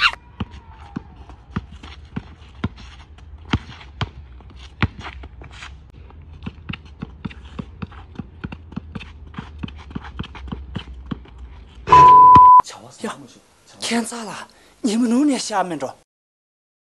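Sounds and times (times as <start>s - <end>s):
basketball bouncing on asphalt: 0.4s - 11.4s
footsteps and shoe scuffs: 1.6s - 5.8s.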